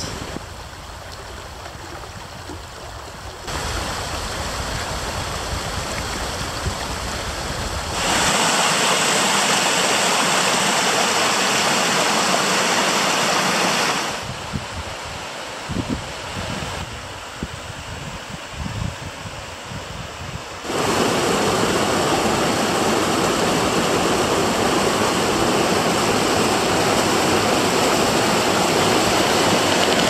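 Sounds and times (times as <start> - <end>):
river rushing over rocks: 3.5 - 14.3, 20.6 - 30.0.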